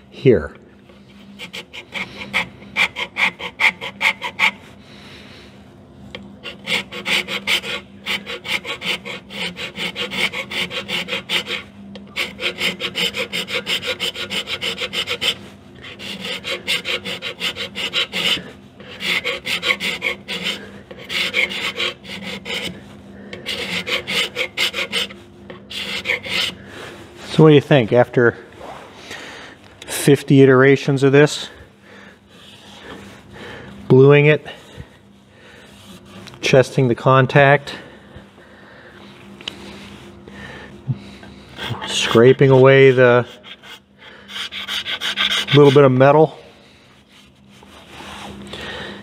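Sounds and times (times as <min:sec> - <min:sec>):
hand scraper scraping metal: 0:01.4 - 0:04.6, 0:06.4 - 0:26.6, 0:41.6 - 0:46.2.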